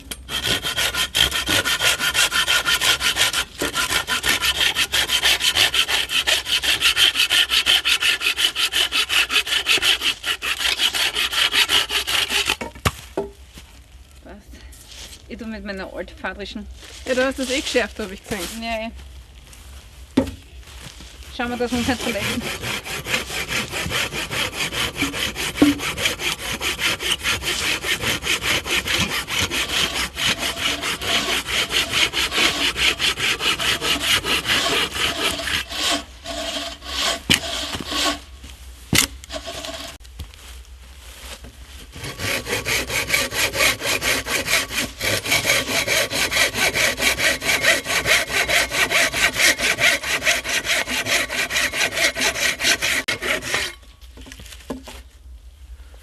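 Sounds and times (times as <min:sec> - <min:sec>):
hand saw cutting wood: 0:00.1 - 0:12.7, 0:21.4 - 0:38.3, 0:38.9 - 0:40.0, 0:41.9 - 0:54.8.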